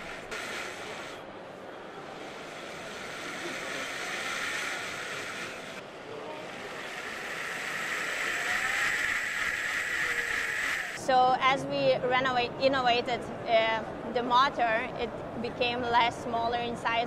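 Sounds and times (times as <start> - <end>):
blender motor whooshing churn: 0.0 - 1.3, 2.0 - 11.0.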